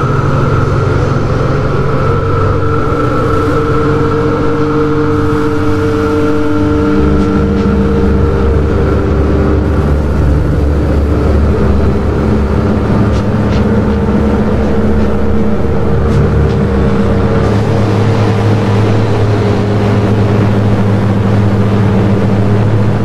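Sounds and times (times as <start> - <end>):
drone music: 0.0 - 23.0.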